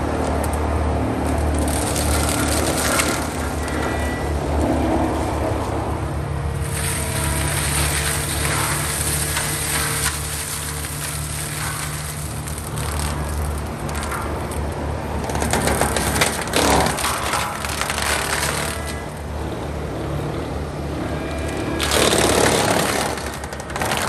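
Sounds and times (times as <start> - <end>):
mulcher engine running: 0.0 - 24.0
drum grinding brush: 6.6 - 19.1.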